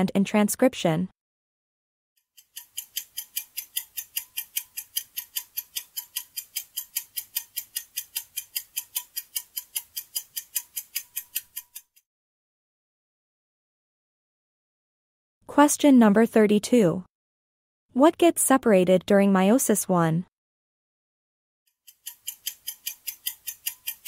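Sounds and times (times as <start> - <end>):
fast clock ticking: 2.3 - 12.0, 21.8 - 24.0.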